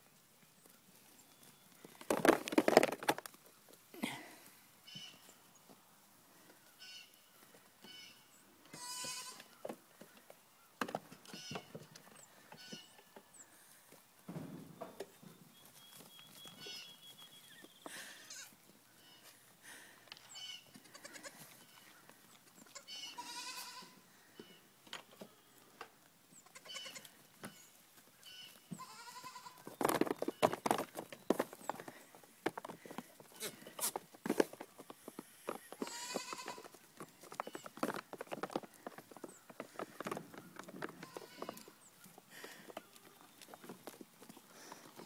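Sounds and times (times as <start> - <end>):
goats bleating: 8.7 - 9.5, 20.4 - 21.5, 22.8 - 24.0, 28.3 - 29.6, 35.8 - 36.7.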